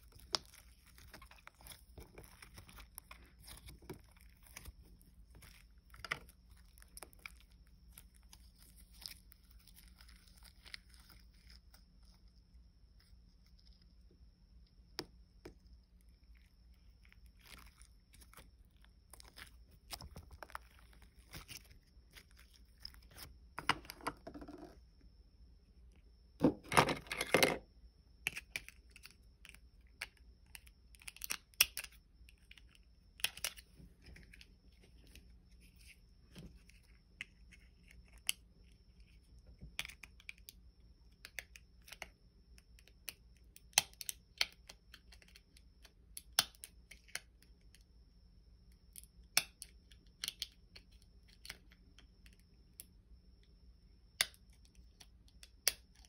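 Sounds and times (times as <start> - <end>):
faint high-pitched whine: 0.0 - 56.0.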